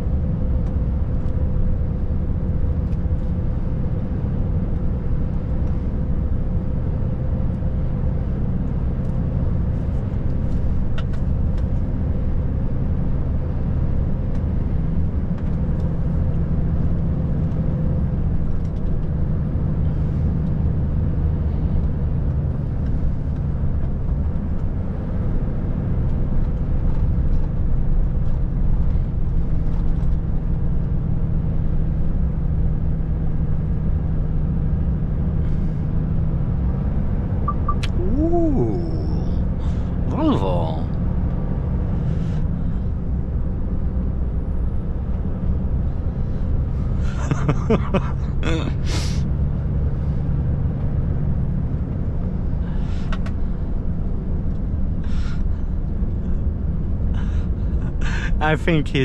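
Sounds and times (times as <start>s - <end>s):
diesel truck engine humming: 37.4s - 41.6s, 45.7s - 50.4s
tyres rushing on road: 46.7s - 49.8s.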